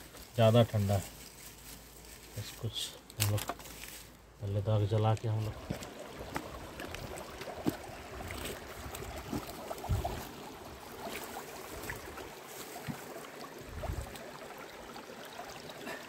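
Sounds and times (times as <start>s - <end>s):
brushing through shrubs: 0.0s - 4.2s
stream running over rocks: 0.0s - 16.0s.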